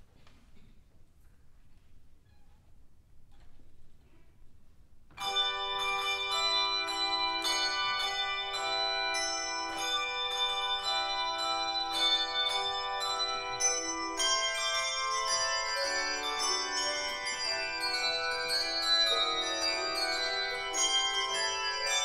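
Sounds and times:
handbells ringing in rhythm: 0:05.2 - 0:22.0.

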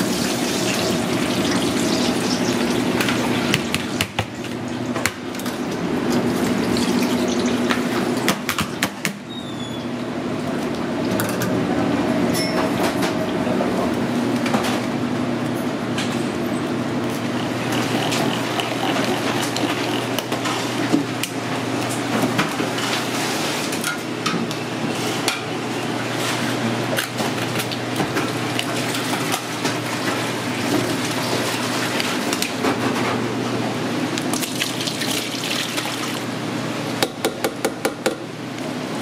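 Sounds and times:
steady machine hum: 0:00.0 - 0:39.0
liquid pouring and splashing: 0:00.1 - 0:03.7, 0:06.2 - 0:08.3, 0:17.4 - 0:20.2, 0:34.3 - 0:36.3.

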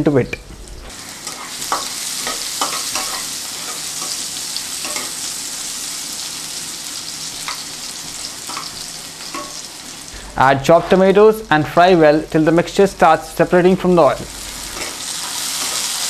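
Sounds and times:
onions sizzling in oil: 0:00.6 - 0:10.1, 0:14.1 - 0:16.0.

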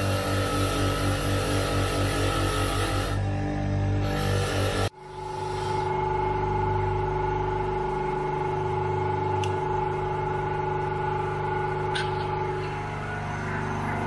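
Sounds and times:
bench grinder motor whining: 0:00.0 - 0:14.0
low hum: 0:04.8 - 0:14.0.

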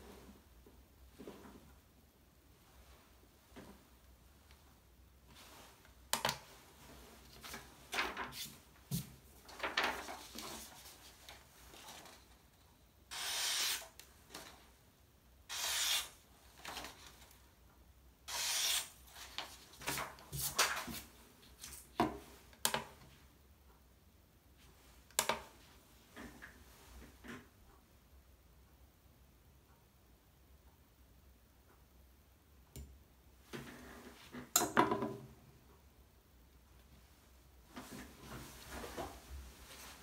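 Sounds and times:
paper rustling: 0:07.4 - 0:12.3.

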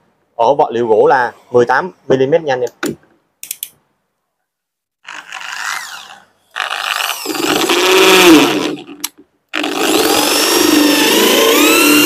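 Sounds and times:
hammer drill boring into wood: 0:05.0 - 0:12.0.

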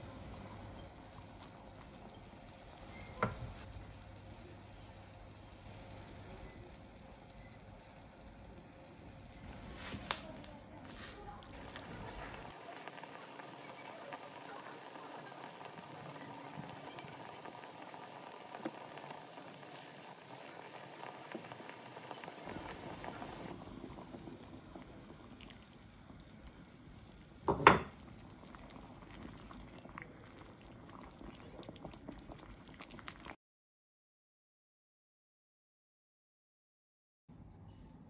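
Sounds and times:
sauce bubbling in a pot: 0:00.0 - 0:33.4.

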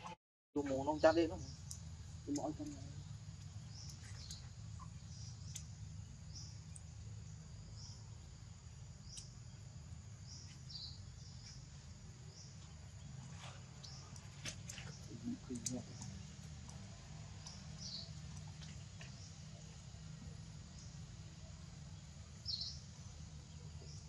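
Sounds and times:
faint clicks: 0:05.4 - 0:05.7, 0:13.8 - 0:19.7.

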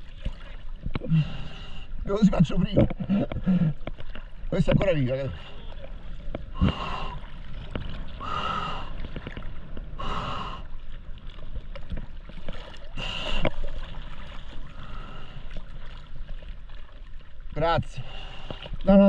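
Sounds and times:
water sloshing: 0:00.0 - 0:19.0
heavy breathing: 0:03.0 - 0:03.8, 0:06.6 - 0:07.2, 0:08.2 - 0:09.0, 0:10.0 - 0:10.7.

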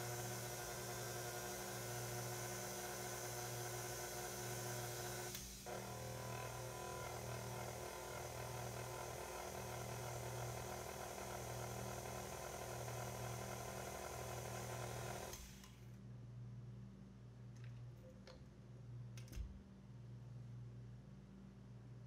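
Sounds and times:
stand mixer whisk beating: 0:00.0 - 0:15.3.

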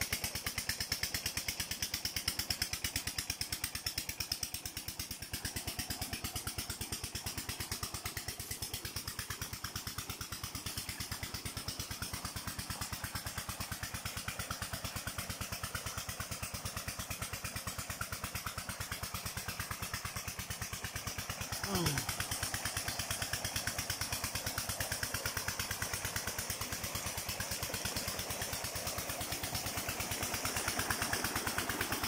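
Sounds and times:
engine chugging: 0:00.0 - 0:32.0.

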